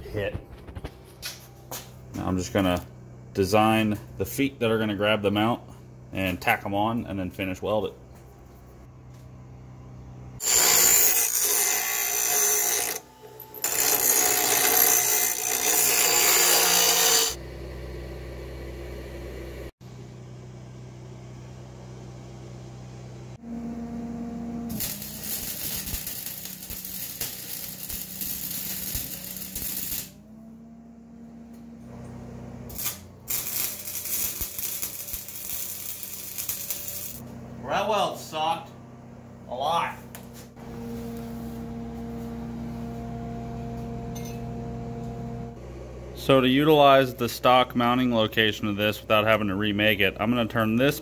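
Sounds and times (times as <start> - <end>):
arc welding crackling: 24.7 - 30.2, 32.7 - 37.2.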